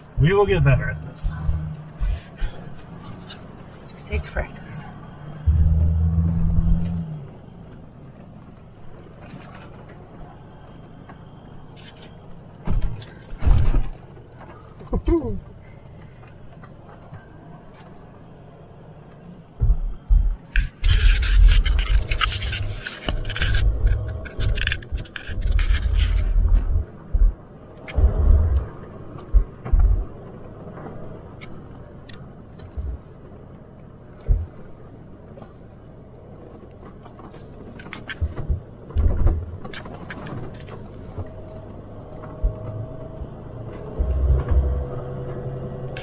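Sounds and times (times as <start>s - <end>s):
vehicle engine rumble: 0.0s - 46.0s
clicks and rattles: 20.4s - 28.0s.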